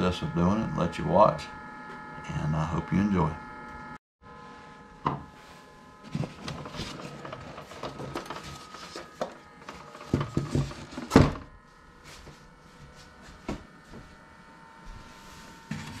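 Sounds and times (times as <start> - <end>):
foam scraping and rubbing: 5.3 - 11.1.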